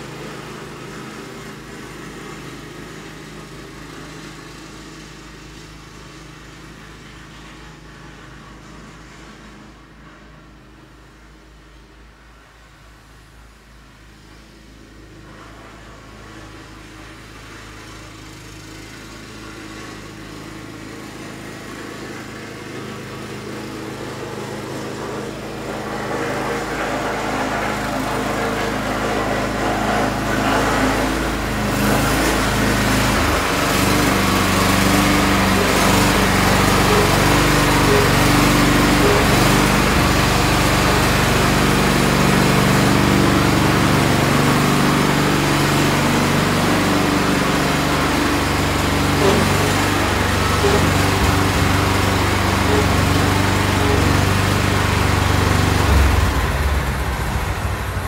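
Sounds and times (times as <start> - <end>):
tractor engine running: 18.0 - 58.0.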